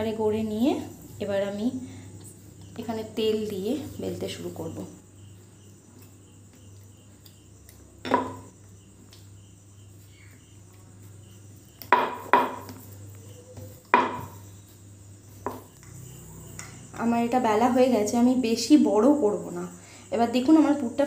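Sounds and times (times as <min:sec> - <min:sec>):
rolling pin knocking on wooden board: 0:08.0 - 0:08.5, 0:11.9 - 0:12.8, 0:13.9 - 0:14.4, 0:15.4 - 0:15.7
dough rolling: 0:08.0 - 0:17.2.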